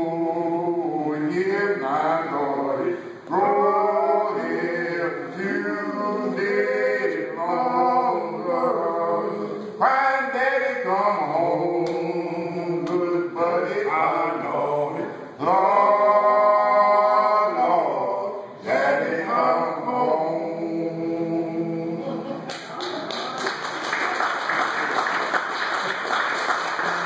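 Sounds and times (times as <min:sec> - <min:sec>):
men singing a cappella: 0:00.0 - 0:22.4
applause: 0:22.5 - 0:27.0.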